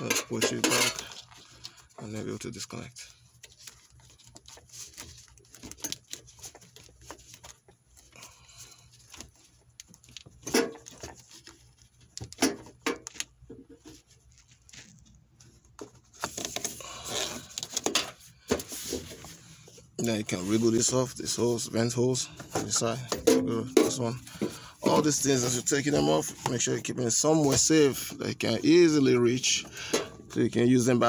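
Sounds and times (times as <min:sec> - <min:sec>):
rustling scrape: 0:18.6 - 0:22.0.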